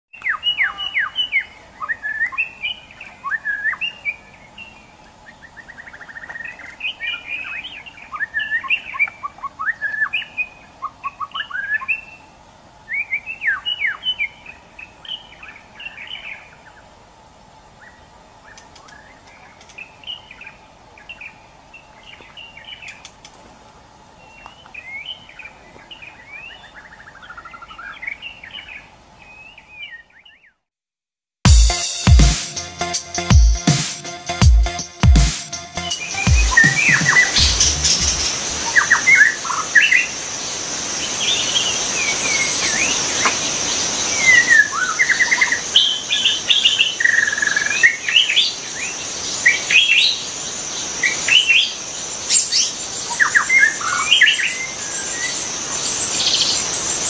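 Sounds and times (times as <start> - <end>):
bird singing whistled phrases: 0.2 - 4.1.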